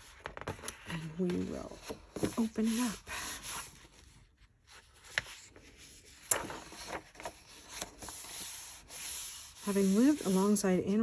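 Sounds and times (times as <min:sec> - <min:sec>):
book pages turning: 0:00.0 - 0:10.6
hands rubbing paper: 0:06.8 - 0:10.8.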